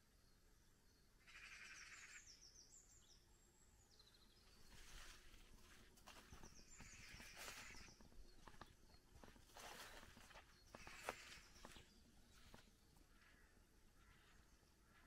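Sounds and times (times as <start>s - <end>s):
faint birdsong: 0.0s - 15.0s
soft footsteps: 4.5s - 13.0s
rustling: 4.6s - 12.8s.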